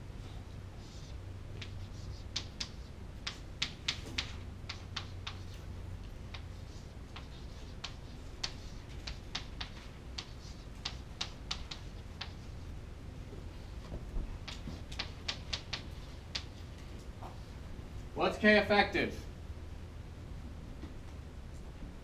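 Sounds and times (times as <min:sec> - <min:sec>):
low room hum: 0:00.0 - 0:22.0
chalk tapping on a chalkboard: 0:00.8 - 0:05.6, 0:06.3 - 0:12.5, 0:14.4 - 0:16.6.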